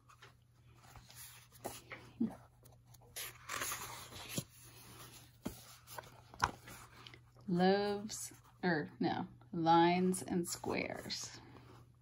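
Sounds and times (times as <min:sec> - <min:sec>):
book pages rustling: 0:00.0 - 0:08.5.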